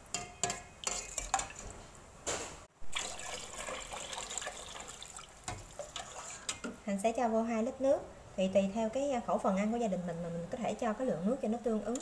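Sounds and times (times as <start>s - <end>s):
water pouring into a pot: 2.9s - 6.4s.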